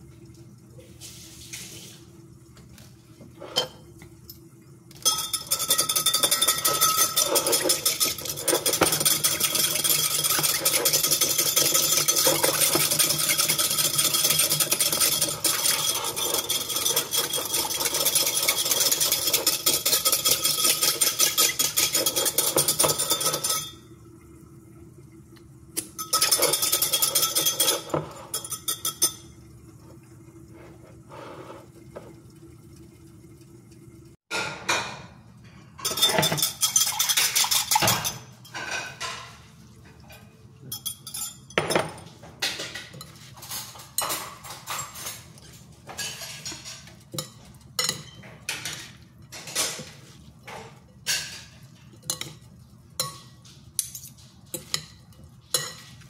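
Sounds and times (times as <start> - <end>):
utensils clinking on glass bowl: 5.0 - 23.8, 25.8 - 29.4, 35.8 - 39.4, 40.0 - 56.0
whisk rattling in a jug: 5.0 - 23.9, 25.8 - 29.4, 35.8 - 39.4, 40.0 - 56.0.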